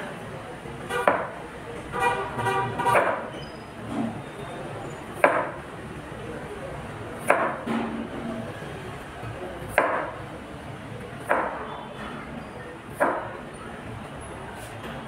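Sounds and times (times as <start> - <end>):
knife chopping on plastic board: 1.0 - 1.4, 2.9 - 3.3, 5.2 - 5.6, 7.2 - 7.7, 9.7 - 10.2, 11.2 - 11.6, 12.9 - 13.4.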